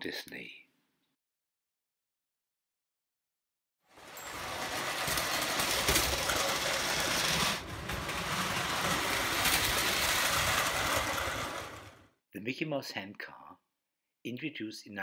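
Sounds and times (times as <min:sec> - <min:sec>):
toy train whirring rattle: 0:03.9 - 0:12.1.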